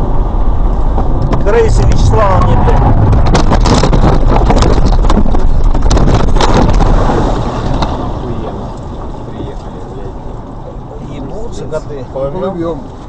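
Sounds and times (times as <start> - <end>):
car crashing knocks and bangs: 2.8 - 8.2.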